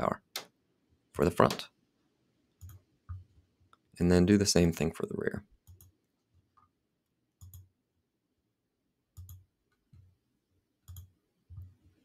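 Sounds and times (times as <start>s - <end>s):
computer mouse buttons clicking: 2.6s - 3.8s, 5.6s - 6.7s, 7.4s - 7.7s, 9.2s - 10.1s, 10.8s - 11.8s.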